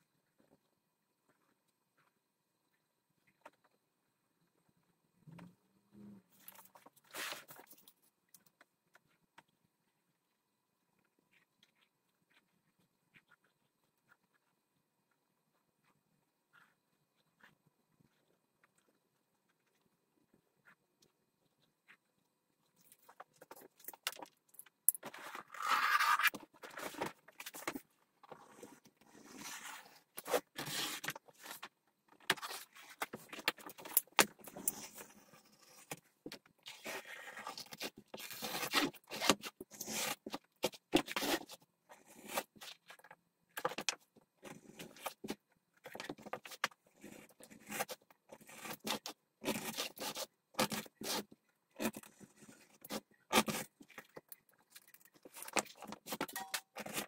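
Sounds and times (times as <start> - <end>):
knife scraping through leather: 36.7 - 40.4, 47.0 - 53.7.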